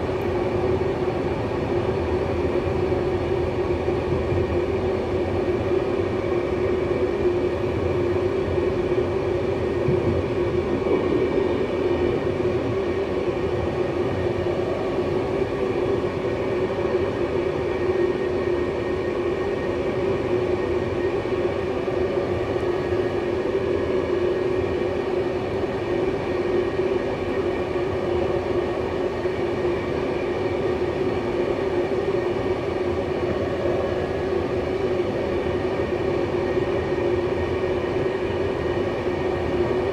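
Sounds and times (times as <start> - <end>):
steady train drone: 0.0 - 39.9
train wheels rumbling on rails: 9.5 - 17.0.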